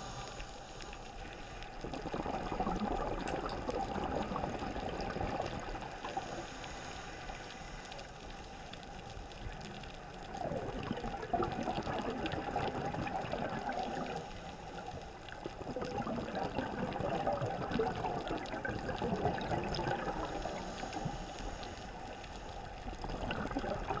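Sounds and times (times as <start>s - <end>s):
scuba diver breathing underwater: 0.0s - 2.2s, 5.8s - 8.7s, 13.2s - 15.1s, 19.4s - 22.6s.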